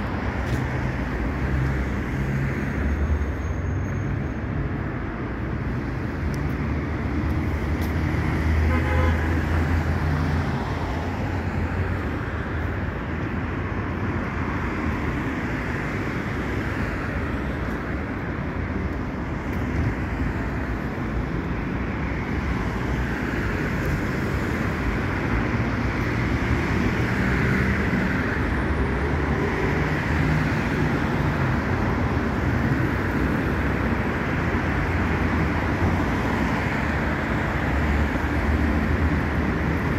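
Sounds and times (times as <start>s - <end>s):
road traffic: 0.0s - 39.9s.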